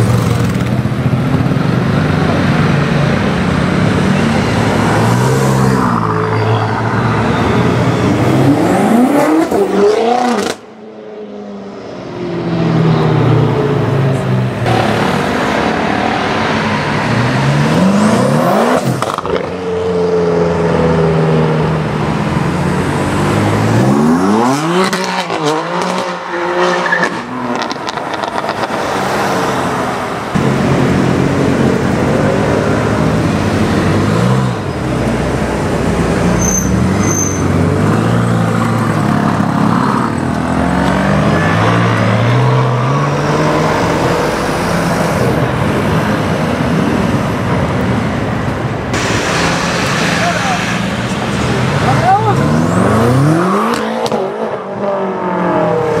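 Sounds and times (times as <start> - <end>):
car engine accelerating hard: 48.9 - 56.0.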